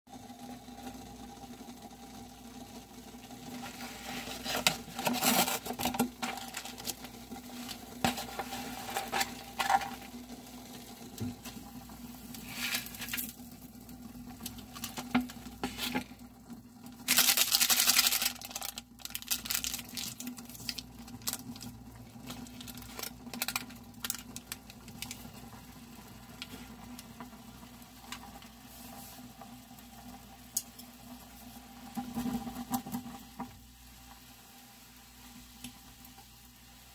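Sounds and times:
packaging crinkling and rustling: 0:03.6 - 0:10.2, 0:12.4 - 0:13.5, 0:14.4 - 0:16.2, 0:16.9 - 0:25.6.

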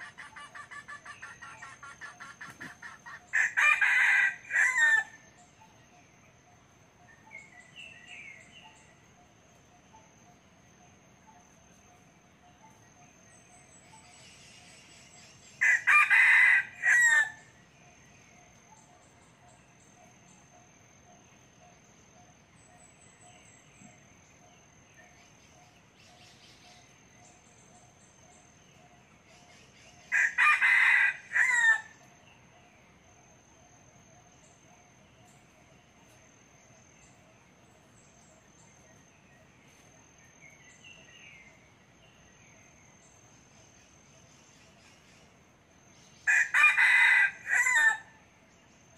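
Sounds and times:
rooster crowing: 0:03.3 - 0:05.2, 0:15.6 - 0:17.4, 0:30.1 - 0:32.0, 0:46.3 - 0:48.1.

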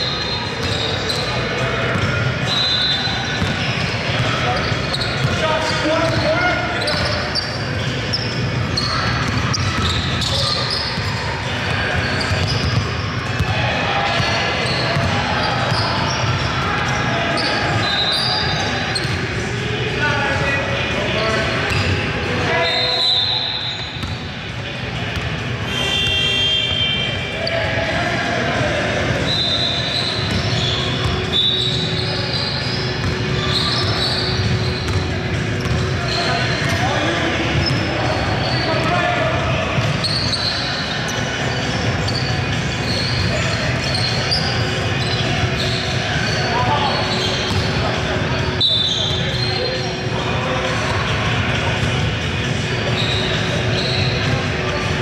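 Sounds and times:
sneakers squeaking: 0:00.0 - 0:27.7, 0:29.0 - 0:55.0
court noise: 0:00.0 - 0:55.0
players' voices: 0:00.0 - 0:55.0
basketball bouncing: 0:01.9 - 0:02.1, 0:03.4 - 0:04.4, 0:34.4 - 0:35.8, 0:47.5 - 0:47.8.

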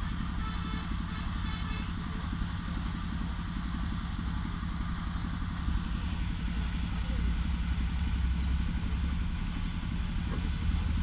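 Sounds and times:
small engine chugging: 0:00.0 - 0:11.0.

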